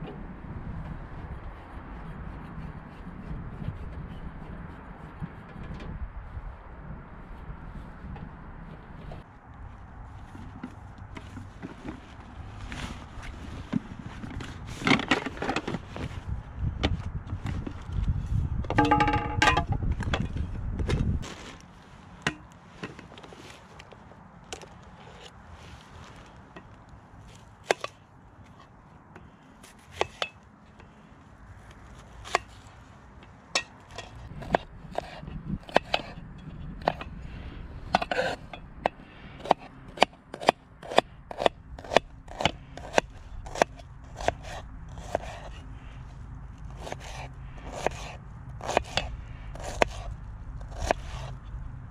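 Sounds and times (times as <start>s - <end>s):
rustling of stuff sacks: 9.8s - 16.5s, 21.0s - 26.5s
cookware knocks and clinks: 18.7s - 19.7s.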